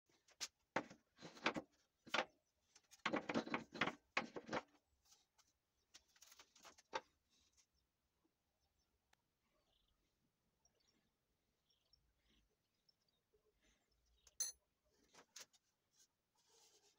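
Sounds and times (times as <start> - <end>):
tools knocking and scraping on wood: 0.7 - 4.8.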